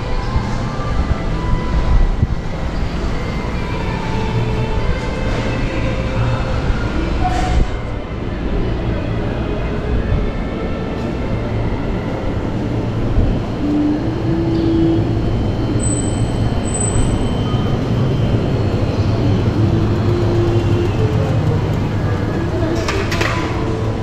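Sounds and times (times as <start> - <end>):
train passing rumble: 0.0 - 24.0
high squeal: 13.6 - 21.1.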